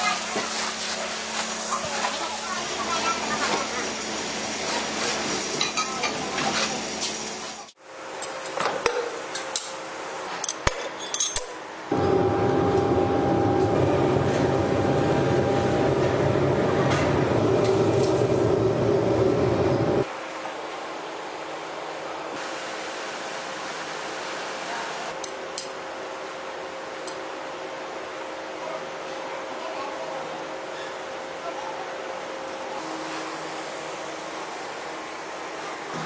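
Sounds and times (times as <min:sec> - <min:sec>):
furnace roaring: 0:00.0 - 0:08.7, 0:11.8 - 0:20.2.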